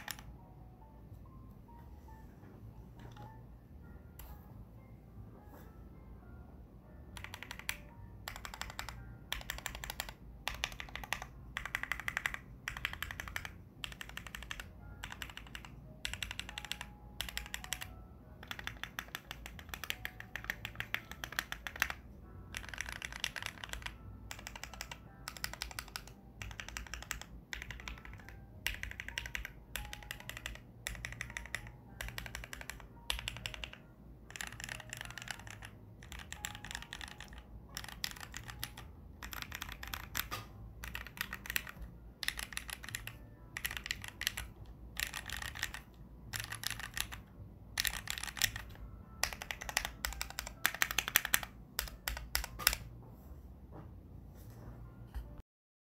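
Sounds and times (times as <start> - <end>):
mechanical keyboard typing: 0.0 - 0.4, 7.0 - 52.9.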